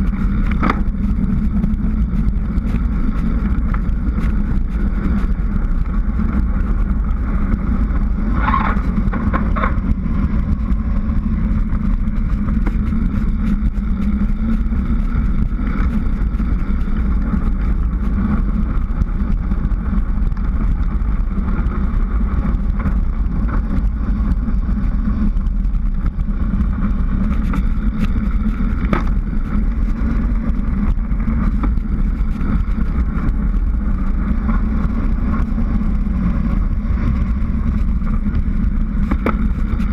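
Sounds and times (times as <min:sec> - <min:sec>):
tyre noise on asphalt: 0:00.0 - 0:39.9
wind rush on microphone: 0:00.0 - 0:39.9.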